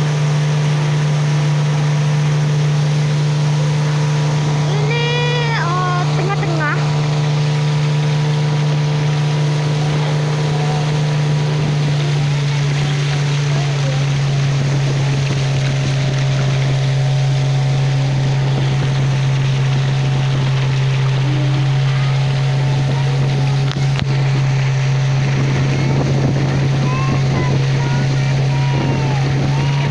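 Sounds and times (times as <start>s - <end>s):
boat engine running: 0.0s - 29.9s
water rushing: 0.0s - 29.9s
wind noise: 22.6s - 29.9s.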